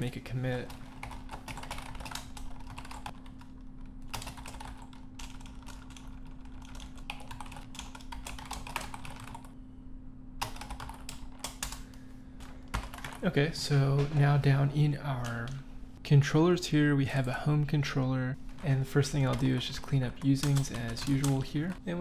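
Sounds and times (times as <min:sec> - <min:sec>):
faint steady hum: 0:00.0 - 0:22.0
typing on a keyboard: 0:01.0 - 0:03.2, 0:04.1 - 0:09.4, 0:20.4 - 0:21.6.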